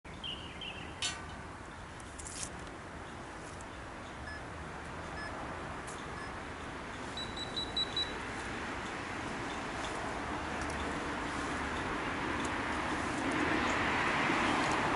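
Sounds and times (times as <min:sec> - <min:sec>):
outdoor background noise: 0:00.0 - 0:14.9
high beeps: 0:07.2 - 0:08.2
short electronic beeps: 0:07.2 - 0:08.2.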